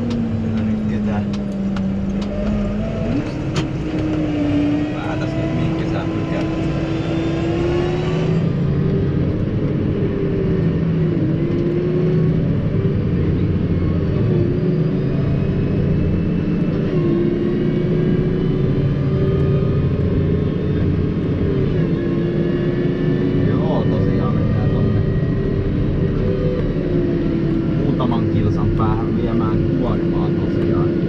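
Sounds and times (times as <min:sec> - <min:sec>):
tractor diesel engine rumble: 0:00.0 - 0:06.9
drivetrain whine: 0:00.0 - 0:31.0.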